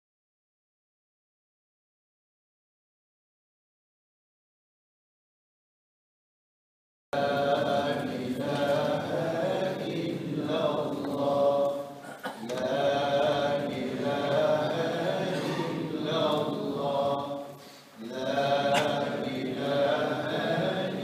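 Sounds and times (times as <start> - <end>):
men chanting in unison: 7.2 - 21.0.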